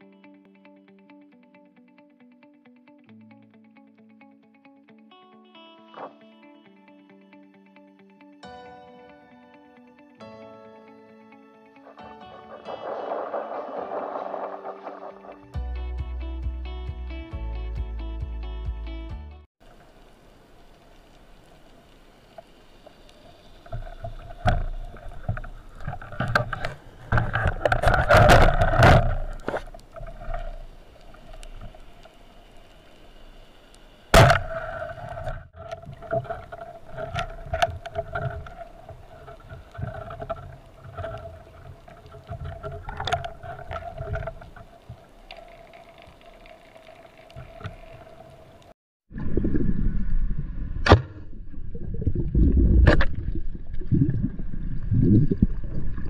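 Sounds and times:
rushing water: 12.0 - 15.6, 19.6 - 49.5
boat motor hum underwater: 19.6 - 56.0
sharp crack: 23.7 - 32.2, 34.1 - 45.6, 50.8 - 51.3
low underwater rumble: 34.2 - 56.0.

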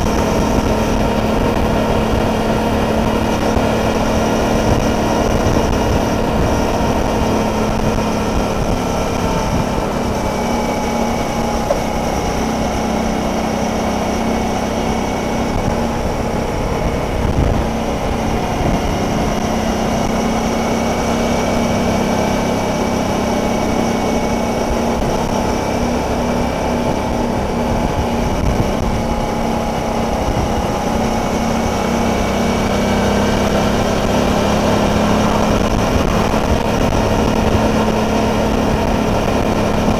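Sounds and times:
motorcycle engine cruising: 0.0 - 39.9
road and wind noise: 0.0 - 39.9.

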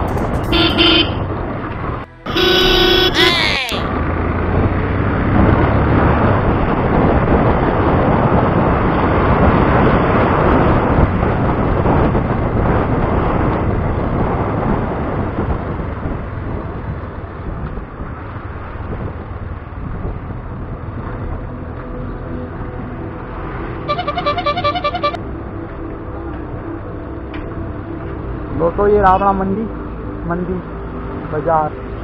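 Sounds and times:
motorcycle engine: 0.0 - 7.2
wind noise on microphone: 0.0 - 25.2
traffic: 0.0 - 32.0.

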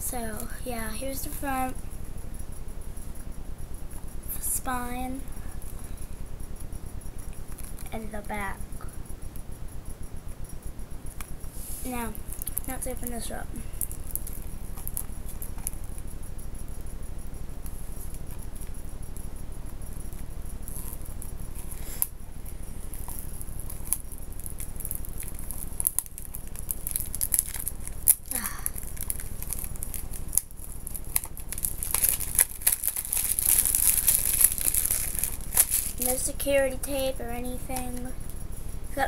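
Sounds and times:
low hum: 0.0 - 39.0
plastic wrap crinkling and tearing: 23.0 - 36.3.

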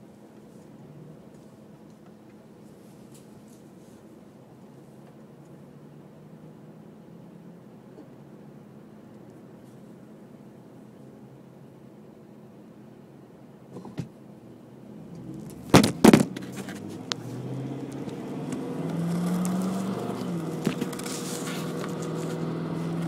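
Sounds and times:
car engine accelerating: 14.7 - 23.0
tyre noise: 15.1 - 23.0
loud knocks: 15.7 - 16.4.

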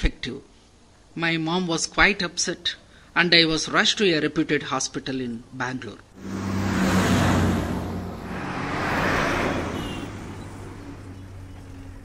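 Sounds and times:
bus driving past: 6.2 - 12.0
passing traffic: 6.2 - 12.0.

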